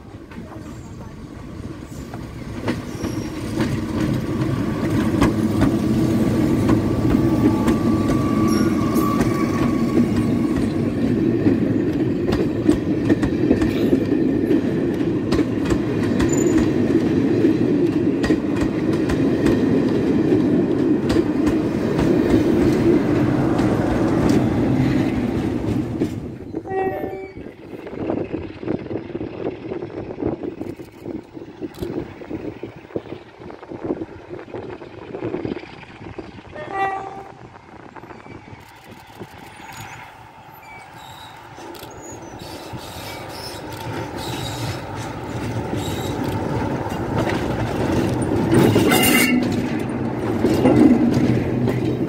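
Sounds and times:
high squeal: 0:02.8 - 0:03.5, 0:06.9 - 0:11.0, 0:39.5 - 0:44.8
wheels clattering over rail joints: 0:39.5 - 0:52.0.

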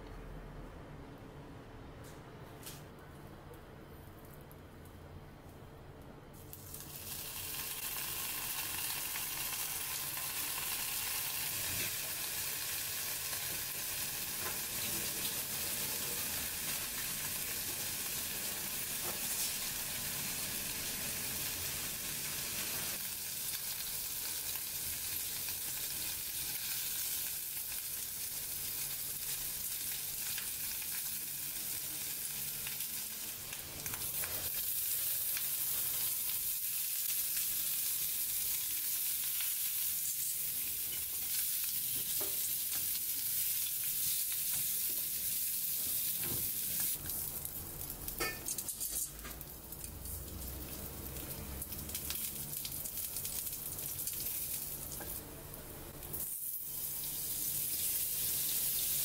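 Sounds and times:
bacon sizzling in a frying pan: 0:06.5 - 0:55.2, 0:55.9 - 0:59.0.

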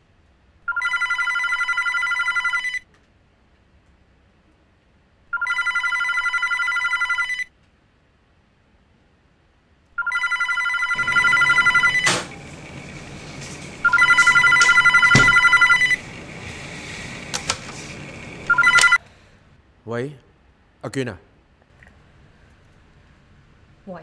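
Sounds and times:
telephone ringing electronic trill: 0:00.7 - 0:02.8, 0:05.4 - 0:07.4, 0:10.0 - 0:17.3, 0:18.2 - 0:19.0
short knocks: 0:11.0 - 0:18.5.

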